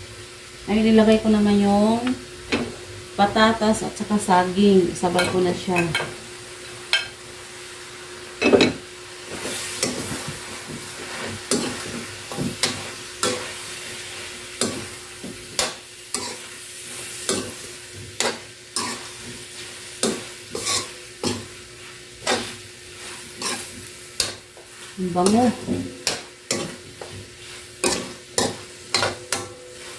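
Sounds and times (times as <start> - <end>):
low sizzle: 0.0 - 29.9
spoon clinking against pan: 6.9 - 7.2
metal spoon scraping wok: 15.6 - 16.5, 20.1 - 21.4.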